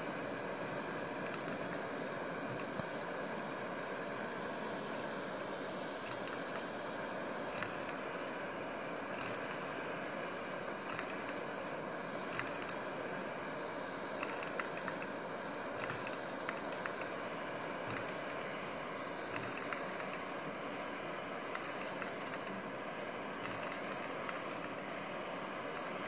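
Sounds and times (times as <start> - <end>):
light mechanical clicks: 1.2 - 4.0, 4.8 - 8.2, 9.1 - 9.8, 10.8 - 13.0, 14.1 - 18.6, 19.2 - 20.6, 21.3 - 22.8, 23.4 - 26.0.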